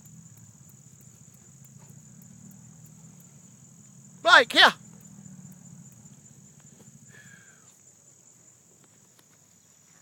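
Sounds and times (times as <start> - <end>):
insect chorus trilling: 0.0 - 10.0
short falling call: 4.3 - 4.8.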